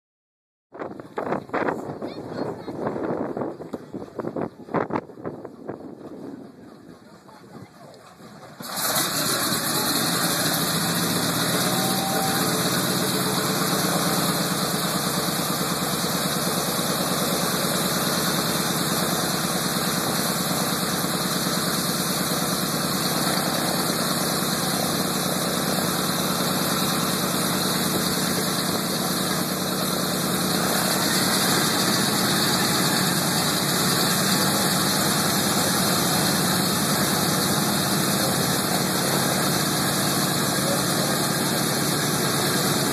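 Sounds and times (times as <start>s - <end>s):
radial aircraft engines idling: 2.5s - 42.9s.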